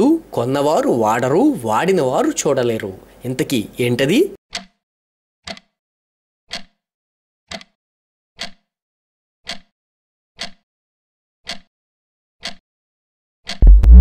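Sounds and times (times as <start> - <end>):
timer ticking: 5.4 - 5.8, 7.5 - 7.8, 8.4 - 8.7, 9.5 - 9.7, 10.4 - 10.6, 11.5 - 11.7, 12.4 - 12.6, 13.5 - 14.0
falling electronic tone: 13.6 - 14.0.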